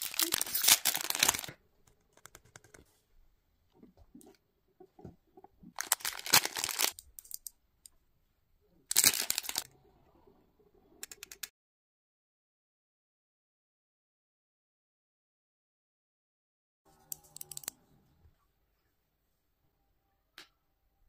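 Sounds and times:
plastic wrapper ripping: 0.0s - 1.6s, 5.8s - 7.4s, 8.9s - 9.6s
plastic wrappers crinkling: 0.0s - 1.6s, 5.7s - 7.5s, 8.9s - 9.6s.

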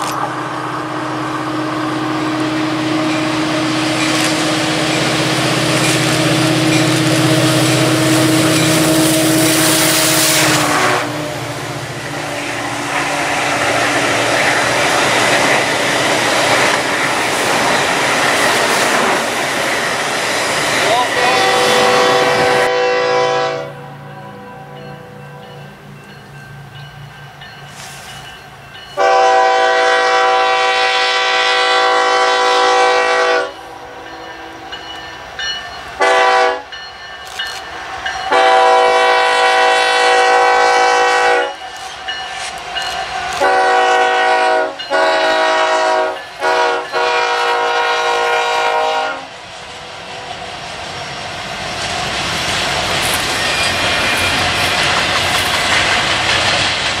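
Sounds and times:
locomotive air horn blasts: 6.0s - 11.7s, 21.2s - 23.9s, 29.0s - 33.9s, 36.0s - 36.7s, 38.3s - 41.6s, 43.3s - 49.3s
freight train wheels clattering: 11.9s - 21.9s, 51.0s - 57.0s.

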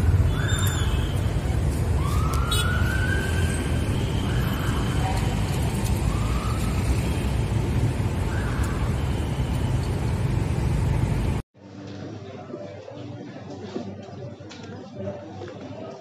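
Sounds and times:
road traffic rumble: 0.0s - 11.4s.

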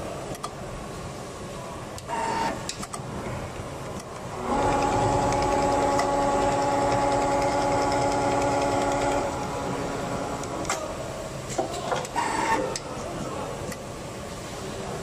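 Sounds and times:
machine clicks and whirs: 1.9s - 3.1s, 3.9s - 10.9s, 11.5s - 12.9s
sewing machine whining: 4.4s - 10.6s.

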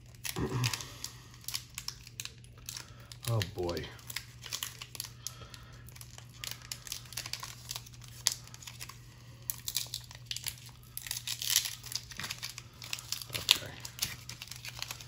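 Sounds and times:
foil wrapper crinkling and tearing: 0.0s - 15.0s.

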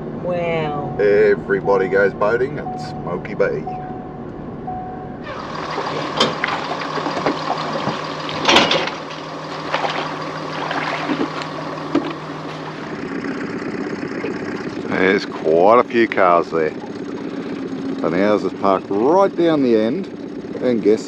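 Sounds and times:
steady hum: 0.0s - 21.0s
vehicle cabin hum: 0.0s - 21.0s
boat launching into water: 5.2s - 21.0s.

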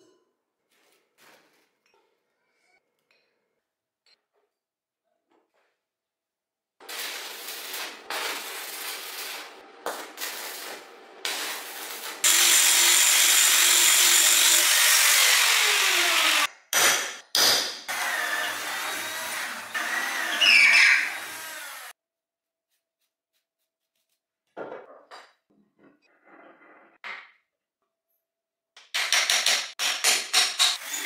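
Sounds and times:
arc welding crackle: 6.8s - 13.4s
power tool running on steel: 6.9s - 16.5s, 17.9s - 21.9s
electric drill boring into steel: 11.5s - 16.5s, 17.9s - 21.9s, 30.8s - 31.0s.

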